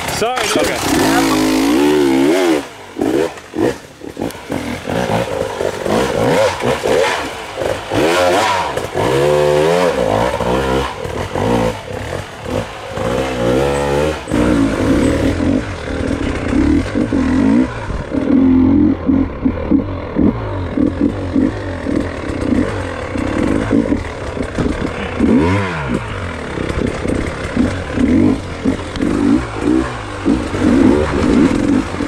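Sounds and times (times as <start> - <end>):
dirt bike engine revving: 0.0 - 32.0
knocks and clatter: 19.7 - 32.0.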